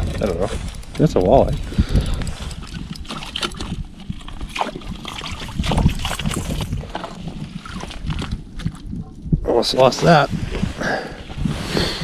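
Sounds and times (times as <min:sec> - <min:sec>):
fish splashing in slushy water: 0:02.6 - 0:08.9.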